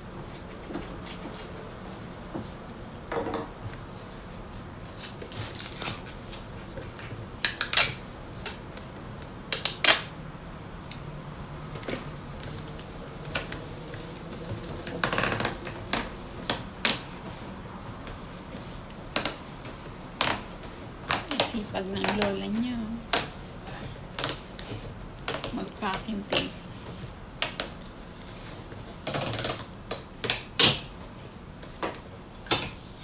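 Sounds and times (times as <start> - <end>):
packing tape ripping off roll: 4.8 - 8.6, 9.5 - 10.1, 20.1 - 22.4, 24.1 - 27.9, 29.0 - 31.0.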